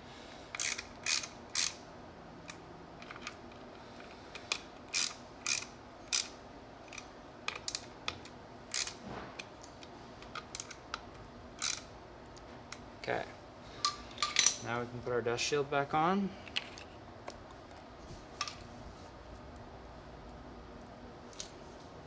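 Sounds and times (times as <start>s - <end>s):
hand ratchet clicking: 0.5s - 1.8s, 4.3s - 9.0s, 11.6s - 11.9s.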